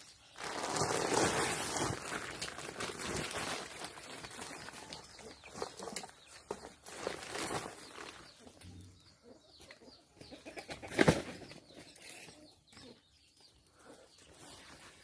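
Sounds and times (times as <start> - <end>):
dry leaves rustling: 0.0 - 8.5.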